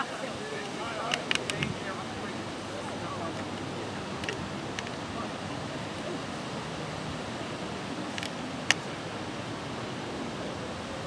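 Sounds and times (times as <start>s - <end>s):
faint clicks: 0.6s - 1.9s, 3.2s - 5.0s, 8.1s - 9.0s
wind on microphone: 0.7s - 11.0s.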